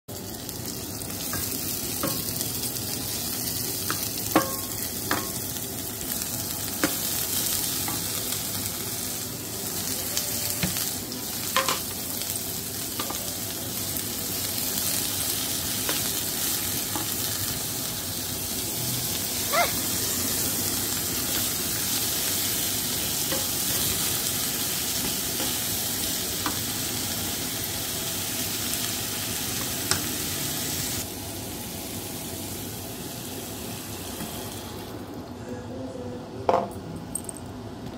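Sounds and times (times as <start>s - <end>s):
oil sizzling in a frying pan: 0.1s - 35.1s
spatula knocking on pan: 3.9s - 5.4s.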